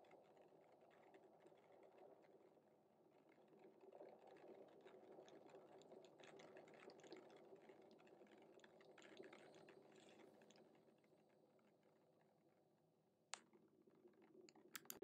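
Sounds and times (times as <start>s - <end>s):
soft small clicks: 14.5s - 15.0s.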